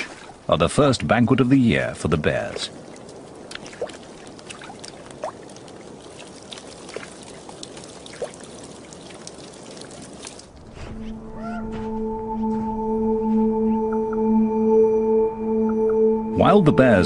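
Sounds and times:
meltwater trickling and dripping: 0:01.7 - 0:10.7
rising plinks of drops: 0:11.9 - 0:17.0.

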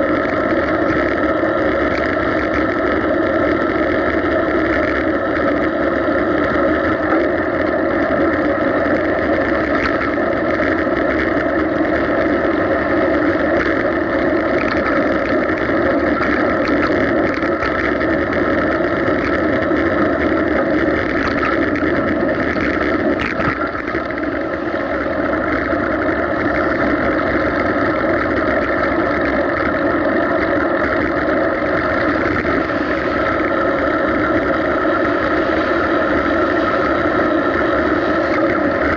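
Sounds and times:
tyre and wind noise: 0:00.0 - 0:38.9.

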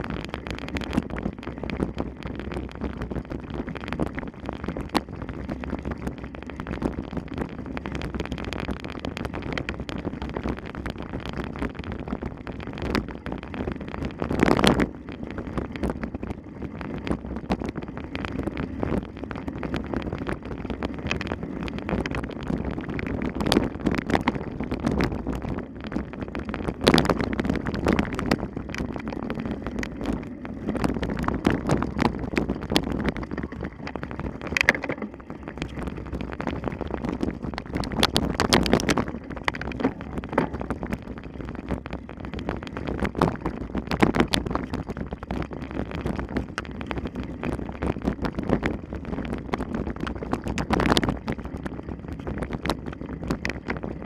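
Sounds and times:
wind rushing over microphone: 0:00.0 - 0:54.0
mountain bike rattling over rough ground: 0:27.0 - 0:35.8.

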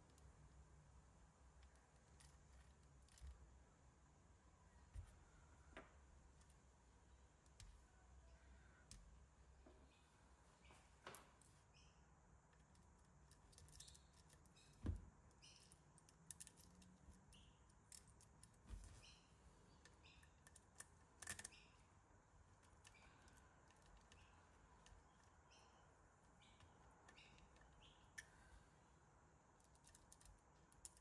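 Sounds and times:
small parts clicking: 0:12.5 - 0:18.6, 0:19.7 - 0:21.7, 0:22.6 - 0:25.4, 0:29.6 - 0:31.0.

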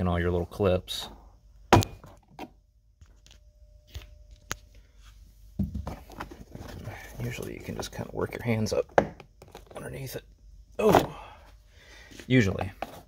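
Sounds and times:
rustling handling noise: 0:04.0 - 0:08.4, 0:12.0 - 0:13.0.

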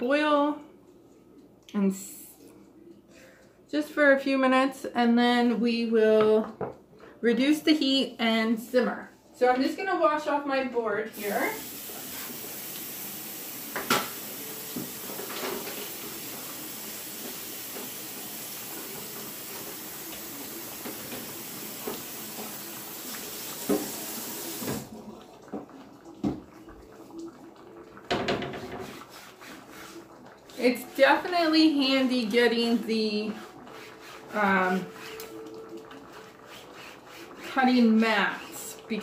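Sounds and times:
faucet running into sink: 0:11.2 - 0:29.8.

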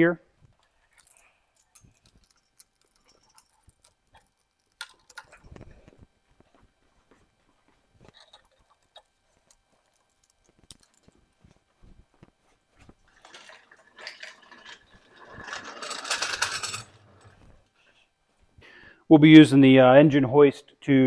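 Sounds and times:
metal chain clinking: 0:00.7 - 0:05.4, 0:13.1 - 0:17.4
metallic rattling and clatter: 0:13.1 - 0:17.4.

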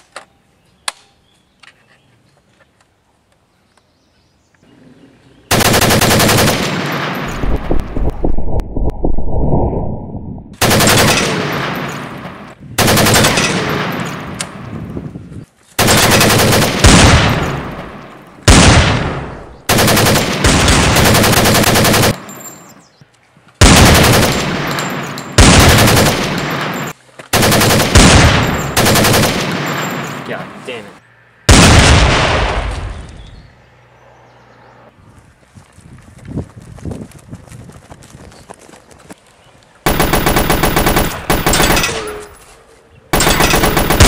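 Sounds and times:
gunfire bursts with echo: 0:05.5 - 0:07.7, 0:10.6 - 0:14.3, 0:15.8 - 0:22.2, 0:23.6 - 0:30.0, 0:39.9 - 0:42.1, 0:43.2 - 0:44.0.

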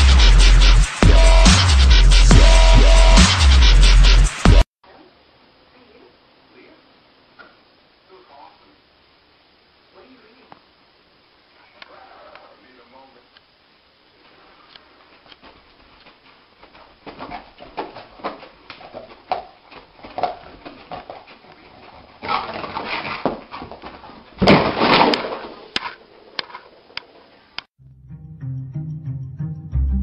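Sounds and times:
dog scrambling up: 0:20.0 - 0:26.7.

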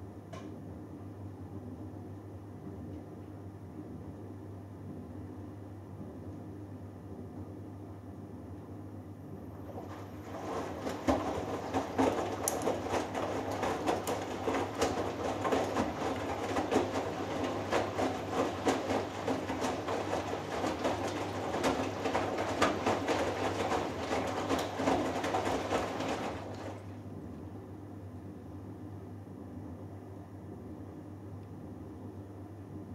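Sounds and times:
washing machine tumbling: 0:09.2 - 0:27.9
water sloshing: 0:09.7 - 0:27.0.

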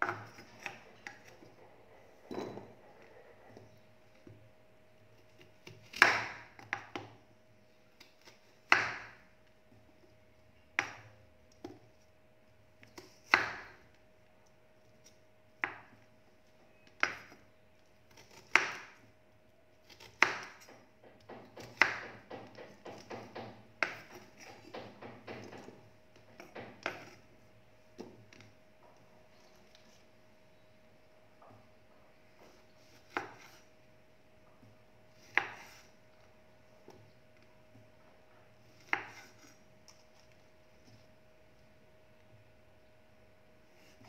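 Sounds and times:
knife chopping on wooden board: 0:00.0 - 0:04.4, 0:05.2 - 0:07.2, 0:08.0 - 0:09.3, 0:10.8 - 0:11.9, 0:12.8 - 0:13.9, 0:15.0 - 0:16.0, 0:16.8 - 0:17.5, 0:18.1 - 0:19.2, 0:19.8 - 0:27.3, 0:32.4 - 0:33.7, 0:34.5 - 0:36.0, 0:38.6 - 0:41.1
faint steady hum: 0:00.0 - 0:44.0.

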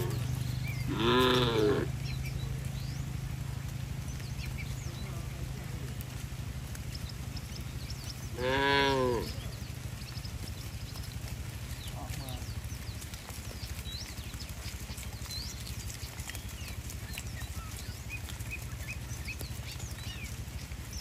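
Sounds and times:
cow mooing: 0:00.0 - 0:02.0, 0:08.3 - 0:09.4
steady low hum: 0:00.0 - 0:15.6.

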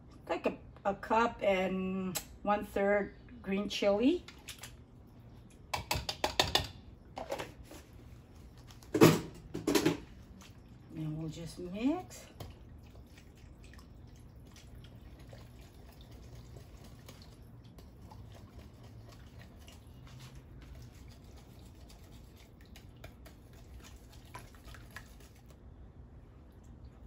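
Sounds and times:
whisk stirring thick sauce: 0:12.2 - 0:25.5.

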